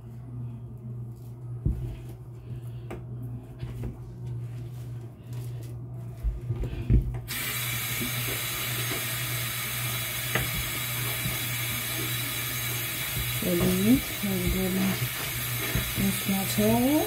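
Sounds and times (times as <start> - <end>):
low steady hum: 0.0 - 17.0
water running into sink: 7.3 - 17.0.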